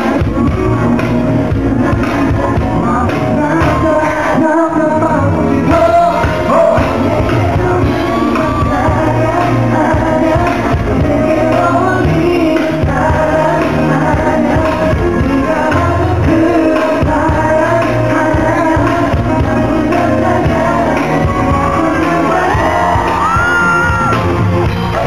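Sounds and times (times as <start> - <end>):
person singing: 0.0 - 25.0
live band playing tango: 17.7 - 25.0.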